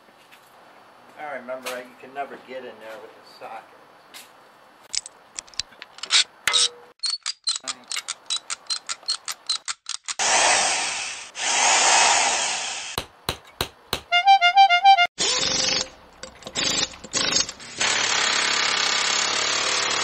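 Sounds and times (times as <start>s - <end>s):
socket ratchet clicking: 7.0s - 10.2s
rushing noises: 10.2s - 13.0s.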